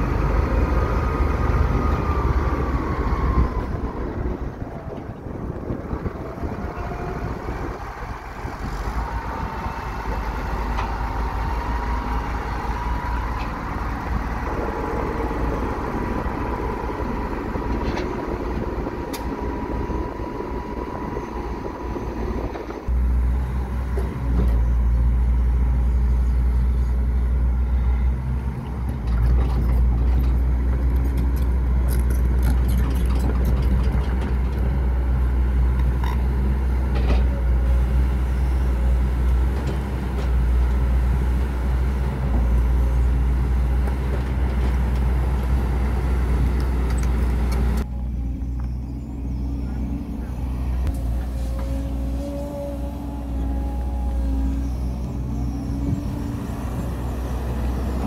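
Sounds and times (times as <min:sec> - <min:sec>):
excavator diesel engine: 0:00.0 - 0:58.0
road roller diesel engine: 0:00.0 - 0:58.0.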